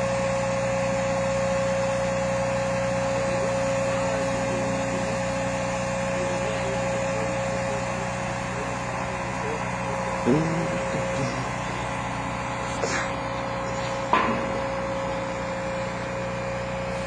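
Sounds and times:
engine droning: 0.0 - 17.0
high even whine: 6.2 - 17.0.

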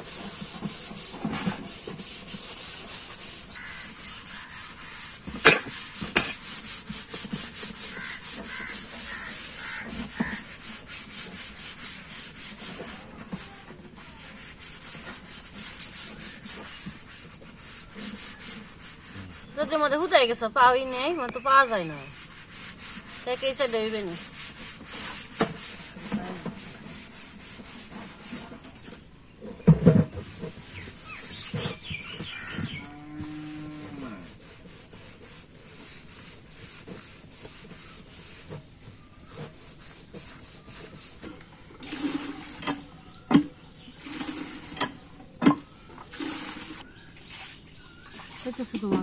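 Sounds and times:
blade scraping fish: 0.0 - 49.0
cow mooing: 32.8 - 34.2.

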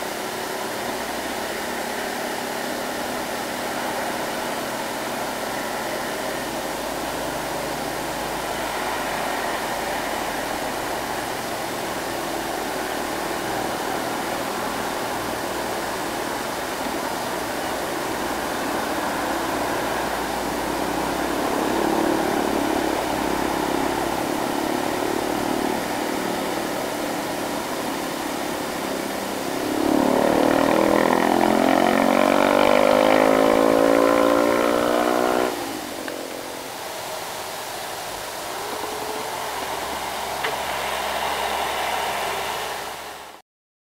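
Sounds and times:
motorcycles passing: 0.2 - 43.4
close engine revving loudly: 5.2 - 36.2.

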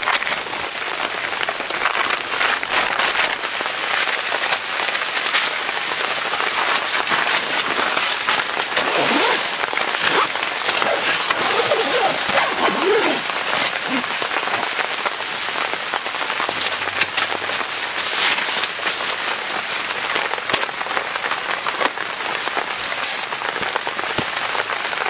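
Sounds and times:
rain pattering on tent fabric: 0.0 - 25.0.

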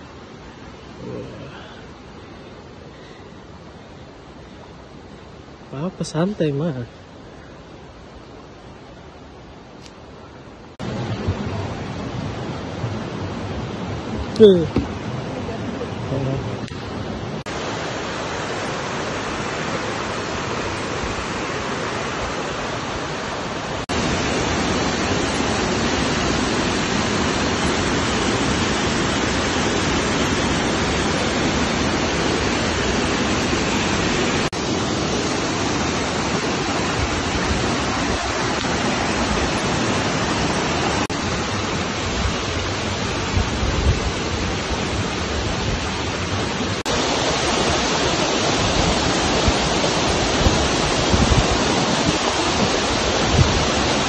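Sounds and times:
waterfall rushing onto rocks: 0.0 - 54.0
microphone bumps: 11.0 - 15.2.

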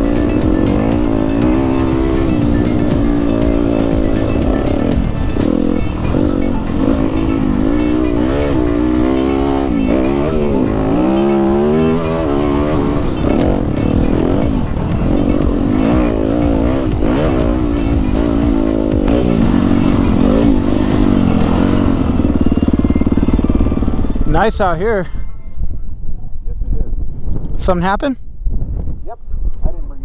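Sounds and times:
dirt bike engine revving: 0.0 - 24.6
wind rumble on microphone: 12.7 - 30.0.

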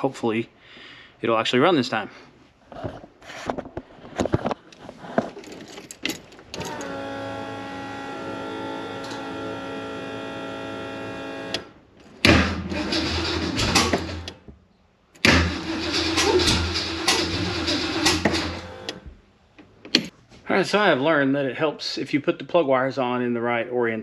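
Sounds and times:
engine starter cranking: 5.4 - 14.4, 15.2 - 19.0
electric fuel pump whining: 6.5 - 14.4, 15.2 - 19.1.

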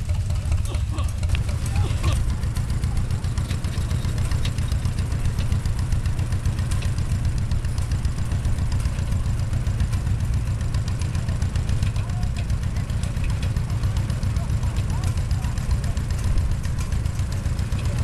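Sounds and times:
tractor engine running: 0.0 - 18.0.

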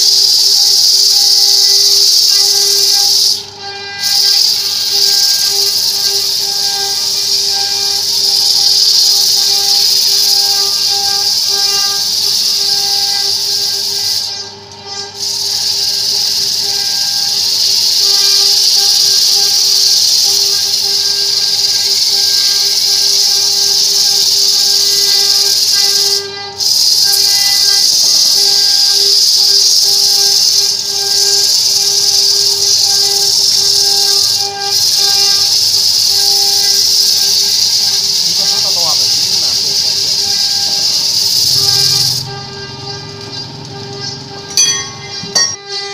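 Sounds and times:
disc sander grinding wood: 0.0 - 45.9
motor humming: 0.0 - 45.9.

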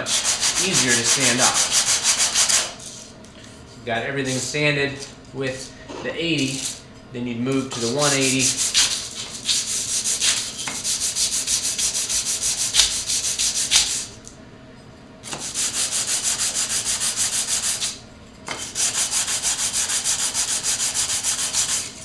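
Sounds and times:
wood rubbing on sandpaper: 0.0 - 3.0, 7.8 - 14.1, 15.4 - 18.0, 18.7 - 22.0.

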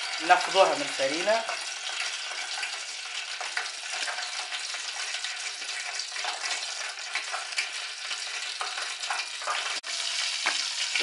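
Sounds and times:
dough deep-frying in hot oil: 0.0 - 11.0.

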